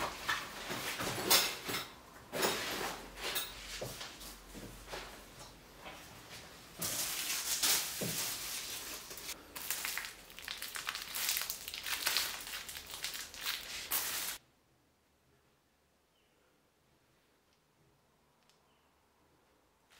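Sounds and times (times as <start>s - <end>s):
plastic wrapping crinkling: 6.8s - 14.4s.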